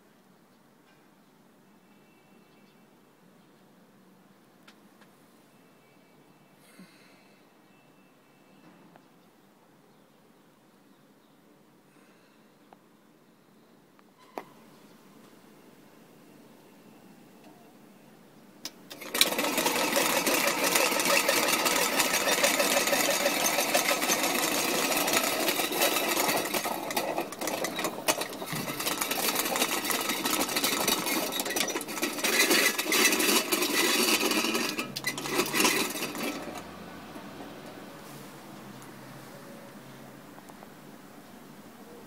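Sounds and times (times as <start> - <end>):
small motor whirring and rattling: 18.9 - 37.4.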